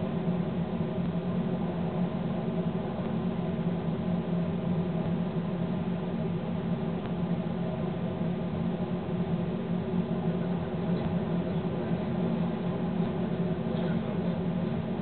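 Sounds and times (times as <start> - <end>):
locomotive hum: 0.0 - 15.0.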